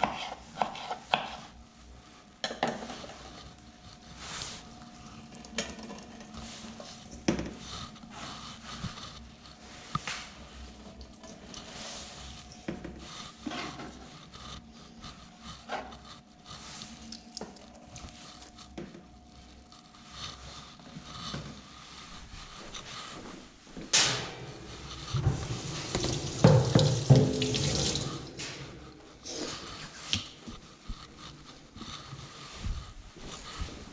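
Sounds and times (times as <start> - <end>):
tap water splashing: 25.2 - 28.4
board knocking against sink: 26.0 - 28.0.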